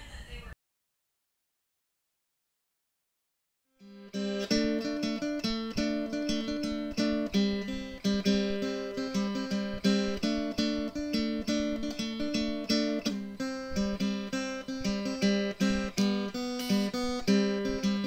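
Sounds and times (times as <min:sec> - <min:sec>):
strummed acoustic guitar: 0:03.8 - 0:18.0.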